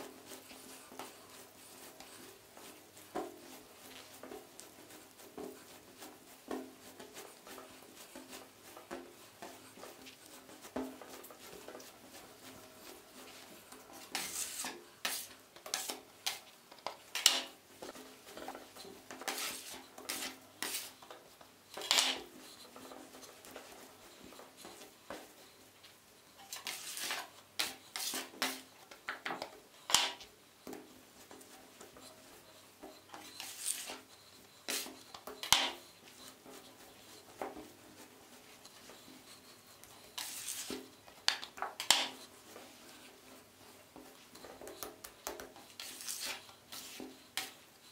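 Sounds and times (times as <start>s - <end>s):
hands kneading dough: 0.0s - 47.9s
bench scraper scraping wood: 14.0s - 16.4s, 19.2s - 21.0s, 21.8s - 22.6s, 26.5s - 28.6s, 33.3s - 34.0s, 39.0s - 40.9s, 45.8s - 47.6s.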